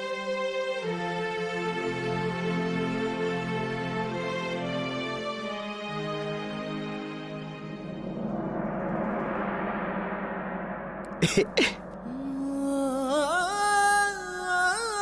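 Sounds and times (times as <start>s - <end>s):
sharp hits: 7.8s - 12.2s.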